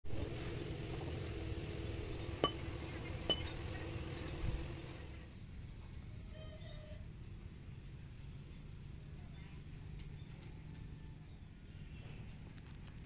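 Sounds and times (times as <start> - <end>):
light metallic clinks: 3.3 - 3.6.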